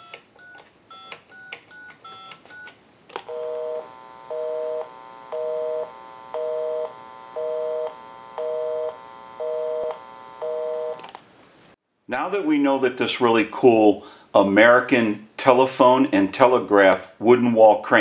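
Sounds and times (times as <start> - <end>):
keypad dialing beeps: 0.0 - 2.7
telephone busy signal: 3.3 - 11.0.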